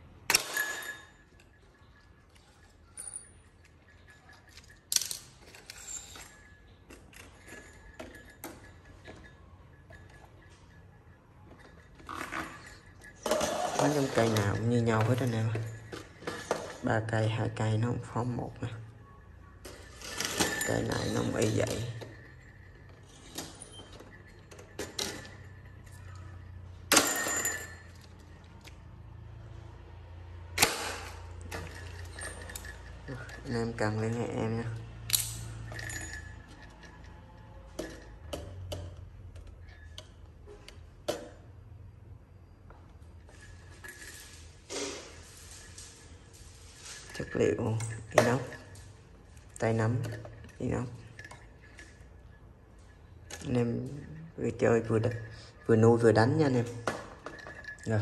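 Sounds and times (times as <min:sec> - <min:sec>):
wire trap door clicking and rattling: 0:00.0 - 0:18.7, 0:19.5 - 0:29.6, 0:30.3 - 0:41.6, 0:43.2 - 0:58.0
wire cage metallic rattle: 0:30.4 - 0:38.7.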